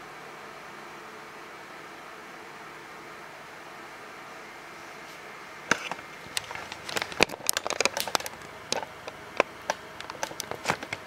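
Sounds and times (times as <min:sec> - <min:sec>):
background hiss: 0:00.0 - 0:11.0.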